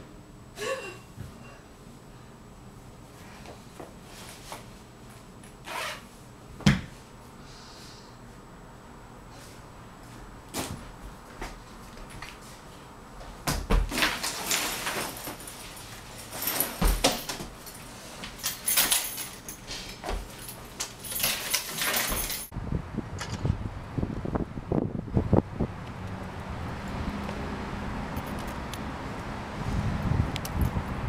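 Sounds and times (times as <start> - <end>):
backpack rustling and knocking: 16.2 - 17.6
gusty wind on microphone: 22.5 - 27.2, 29.3 - 31.0.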